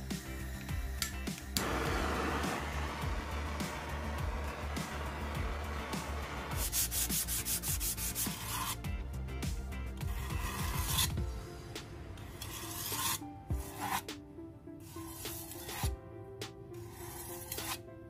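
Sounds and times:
butane torch flame hissing: 1.6 - 4.6
blade scraping on whetstone: 6.0 - 8.8, 10.0 - 11.2, 12.2 - 14.1, 14.8 - 16.0, 16.8 - 17.8.

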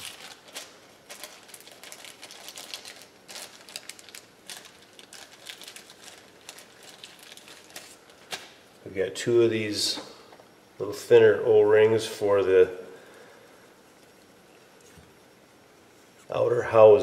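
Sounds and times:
plastic bags crinkling: 0.0 - 8.7.

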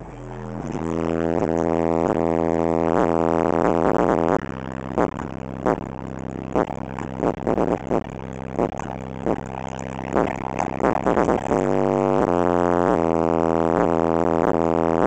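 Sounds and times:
subwoofer bass tone distorting: 0.0 - 15.0.

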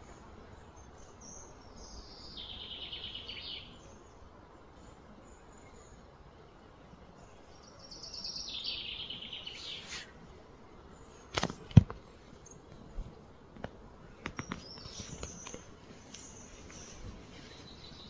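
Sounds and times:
sharp clicks and knocks: 13.5 - 15.6.

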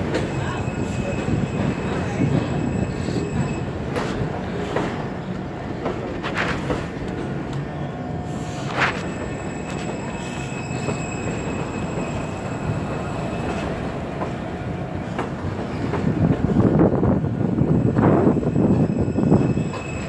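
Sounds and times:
subway train wheels rumbling: 0.0 - 20.0
high wheel squeals: 0.3 - 3.8, 7.7 - 13.7, 18.2 - 20.0.

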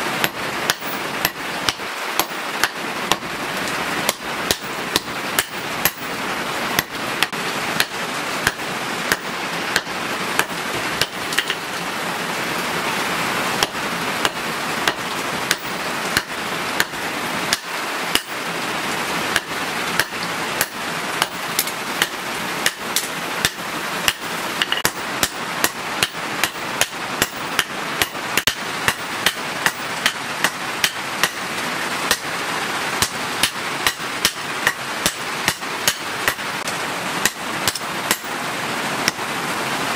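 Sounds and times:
constant hiss: 0.0 - 39.9
hammer striking metal on anvil: 0.2 - 3.2, 4.1 - 6.1, 6.8 - 11.6, 13.6 - 16.9, 17.5 - 18.3, 19.3 - 31.4, 33.0 - 36.4, 37.2 - 38.3.

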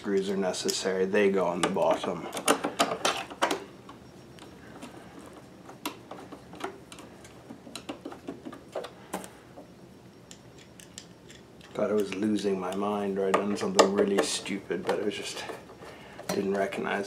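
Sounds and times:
screwdriver clicking on metal: 10.3 - 15.0.

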